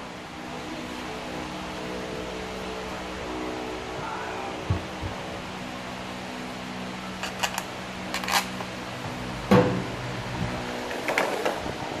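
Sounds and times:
workshop hum: 0.0 - 12.0.

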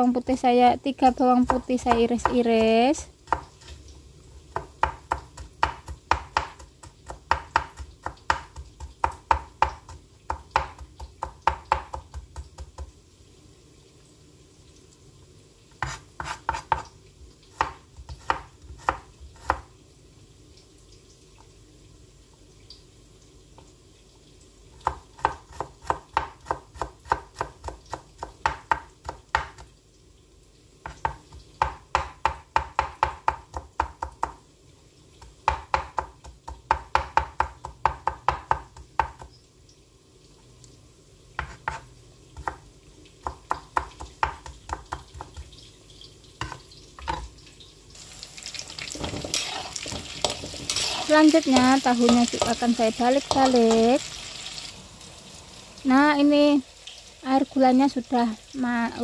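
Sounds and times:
knife chopping on cutting board: 1.4 - 2.7, 4.5 - 12.9, 15.8 - 16.9, 17.6 - 19.7, 24.8 - 29.7, 30.8 - 34.4, 35.4 - 39.3, 41.4 - 42.6, 43.2 - 45.5, 49.0 - 52.6.

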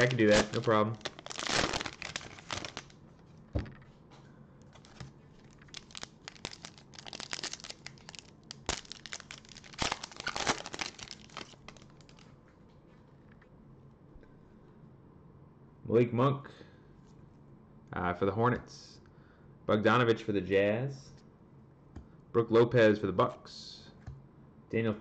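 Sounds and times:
cards drawn out of pack: 0.0 - 2.9, 4.8 - 12.2
foil wrapper tearing and crinkling: 0.0 - 2.9, 4.8 - 12.2.

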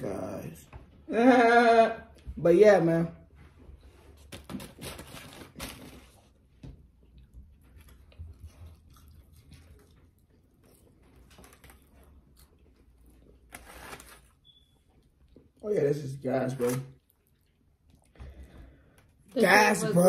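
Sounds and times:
foil wrapper crinkling: 4.3 - 6.3, 13.5 - 14.4
chewing food: 6.4 - 13.6, 14.4 - 16.0, 16.9 - 19.3.

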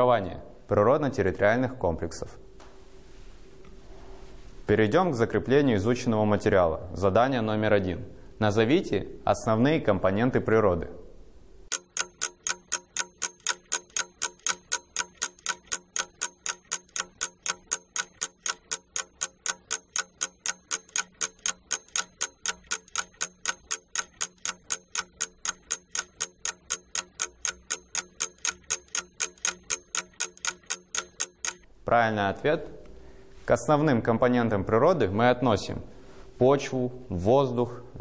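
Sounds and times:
fast clock ticking: 11.7 - 31.7.

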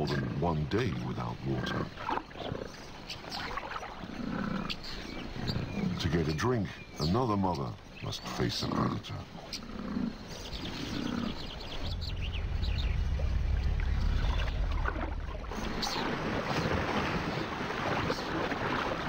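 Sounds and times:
deep low rumble: 10.4 - 17.4
rush of splashing water: 10.4 - 19.0
buffalo splashing and trampling: 12.4 - 19.0.

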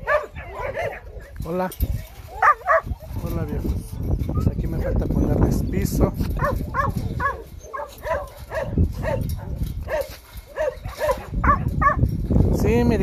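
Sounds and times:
dog barking: 0.0 - 1.4, 2.3 - 3.0, 6.4 - 12.0.

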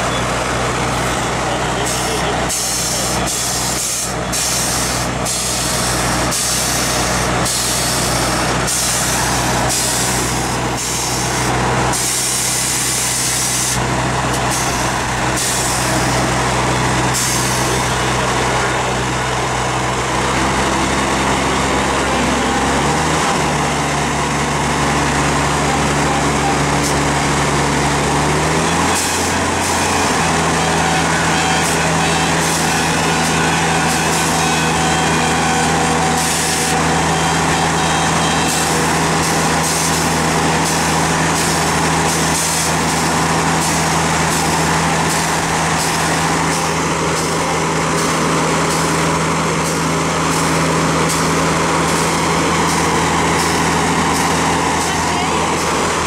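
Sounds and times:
diesel engine idling: 0.0 - 56.0
compressed air hissing: 1.8 - 13.8.

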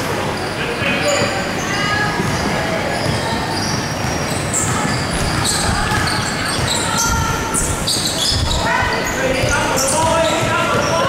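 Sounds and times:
players' voices: 0.0 - 11.0
sneaker squeaks: 0.0 - 11.0
basketball bouncing on hardwood: 9.3 - 10.9.

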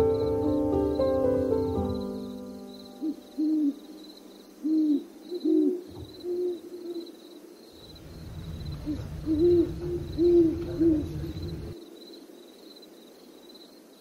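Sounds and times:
owls hooting: 0.0 - 12.0
faint pulsing high chirp: 0.0 - 12.8
low rumble: 7.8 - 11.8.

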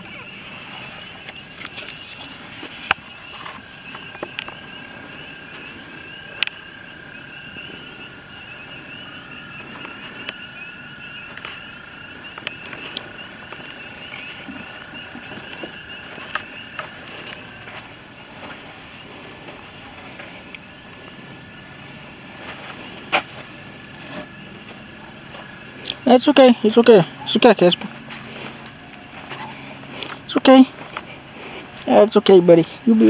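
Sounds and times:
frogs chirping: 0.0 - 33.0
steady whine: 0.0 - 33.0.

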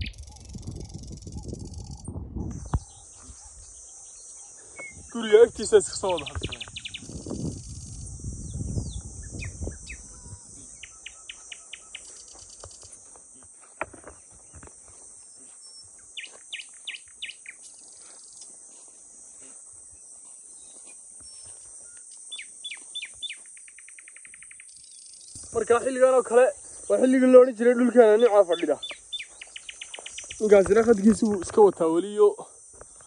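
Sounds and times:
falling bird chirps: 0.0 - 2.0, 6.1 - 7.4, 28.0 - 30.4
high-pitched insect drone: 0.0 - 33.0.

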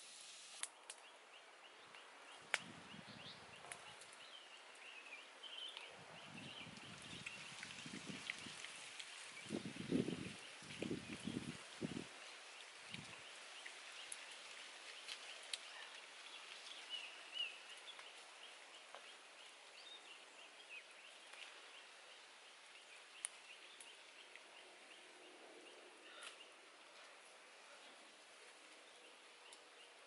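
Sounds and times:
small birds chirping: 9.1 - 30.0.

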